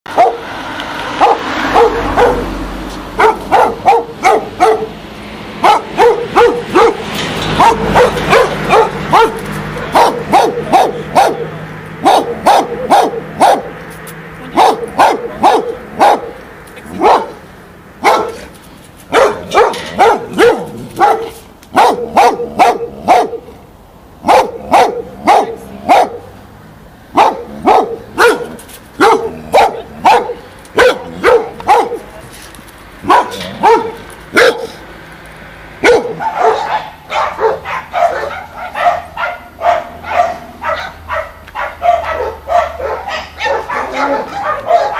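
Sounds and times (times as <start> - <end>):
dog barking: 0.1 - 0.4, 1.2 - 2.5, 3.2 - 5.0, 5.6 - 13.8, 14.6 - 17.4, 18.0 - 18.5, 19.1 - 23.5, 24.2 - 26.3, 27.1 - 32.1, 33.0 - 34.8, 35.8 - 44.9.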